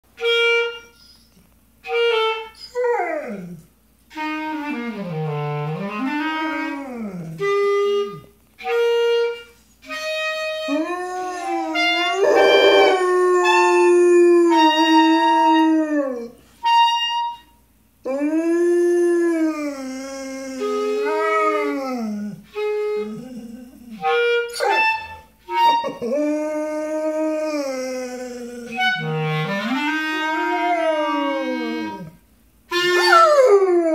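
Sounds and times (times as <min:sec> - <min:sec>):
clarinet playing held notes: 0:00.2 - 0:02.9, 0:04.1 - 0:33.9
dog howling: 0:10.7 - 0:16.4, 0:18.1 - 0:22.4, 0:29.7 - 0:32.1.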